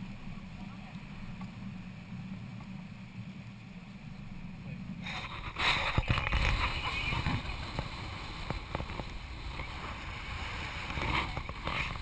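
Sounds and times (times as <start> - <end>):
water rushing along hull: 0.0 - 12.0
wind on microphone: 4.0 - 12.0.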